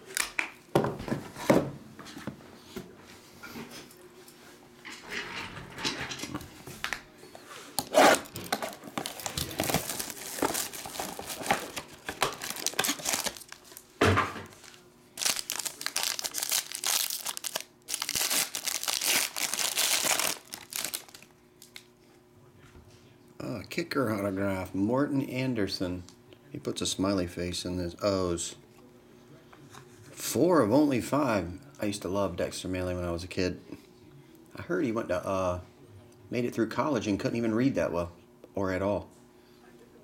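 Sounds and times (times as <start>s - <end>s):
foil wrapper crinkling and tearing: 8.1s - 21.9s.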